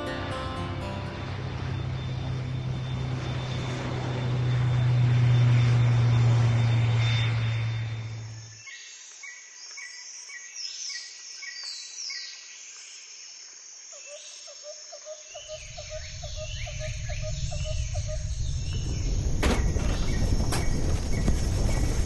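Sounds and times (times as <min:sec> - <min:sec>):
insects chirping: 0:01.0 - 0:22.0
birds chirping: 0:15.3 - 0:22.0
deep volcanic rumble: 0:15.6 - 0:22.0.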